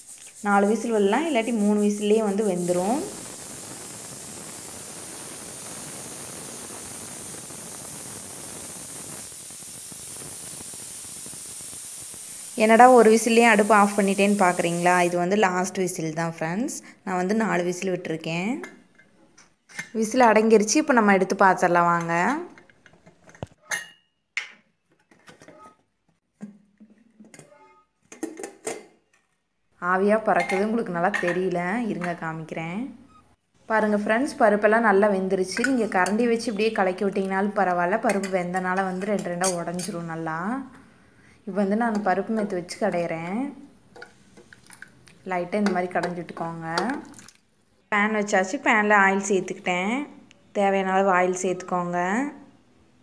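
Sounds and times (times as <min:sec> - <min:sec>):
pressure cooker steam hiss: 0:00.0 - 0:15.8, 0:35.3 - 0:44.6.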